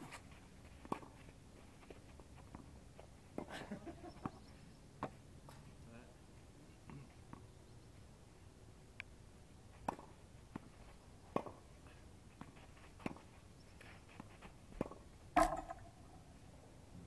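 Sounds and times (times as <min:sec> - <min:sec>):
tennis ball bouncing: 0:09.8 - 0:10.7, 0:11.3 - 0:11.6, 0:14.8 - 0:16.0.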